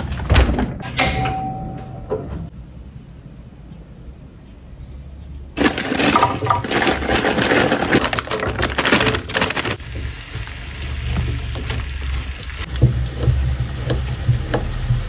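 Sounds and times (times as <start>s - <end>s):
potatoes sizzling in hot oil: 9.8s - 15.0s.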